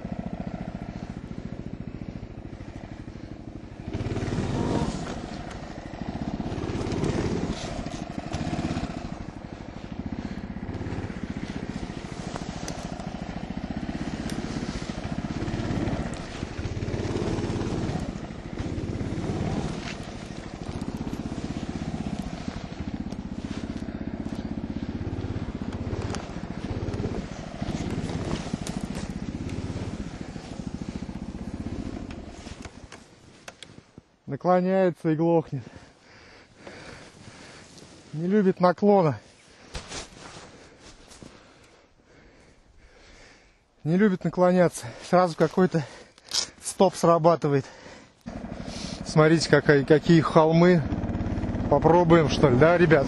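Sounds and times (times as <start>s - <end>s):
snowmobile engine revving: 0.0s - 33.0s, 48.2s - 53.0s.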